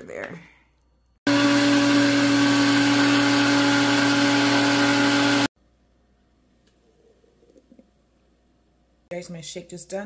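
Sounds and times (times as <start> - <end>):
blender motor whirring: 1.3 - 5.5.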